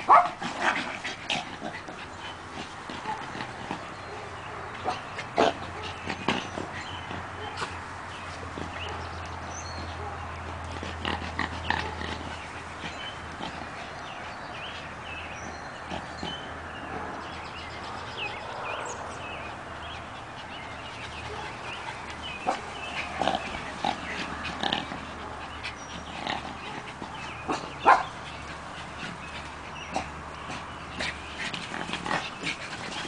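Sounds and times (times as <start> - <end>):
small dogs barking sharply: 0.0 - 0.9, 26.6 - 28.7.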